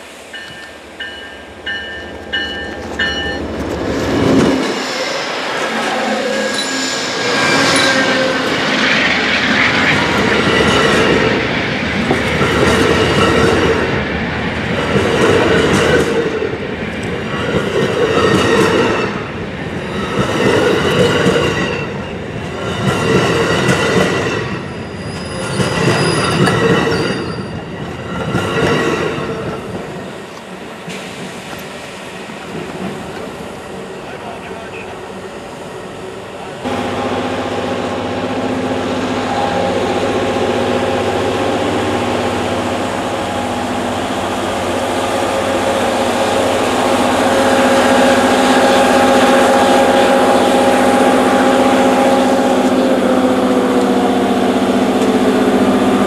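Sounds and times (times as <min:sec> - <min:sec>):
train cars rumbling: 0:00.0 - 0:56.0
high wheel squeal: 0:04.8 - 0:10.9, 0:24.6 - 0:27.9.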